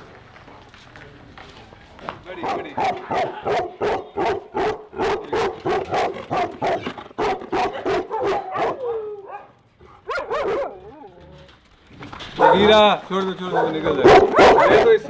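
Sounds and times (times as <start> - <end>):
dog barking rapidly: 2.4 - 10.9, 12.4 - 12.8, 13.5 - 15.0.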